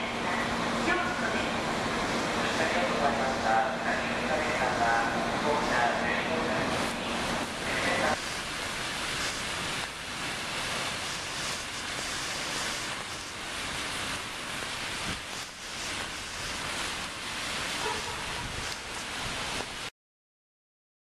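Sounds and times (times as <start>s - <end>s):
distant traffic: 0.0s - 14.7s
wind hiss: 0.0s - 19.9s.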